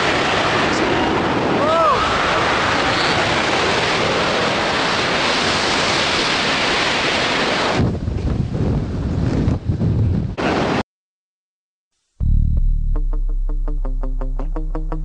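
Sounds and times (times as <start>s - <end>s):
freefall wind on microphone: 0.0s - 10.8s.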